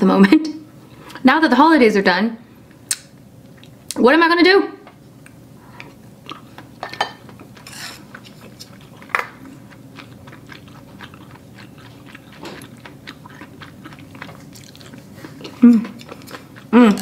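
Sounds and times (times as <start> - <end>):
wet mouth clicks: 2.9 - 3.1
chewing food close up: 5.2 - 17.0.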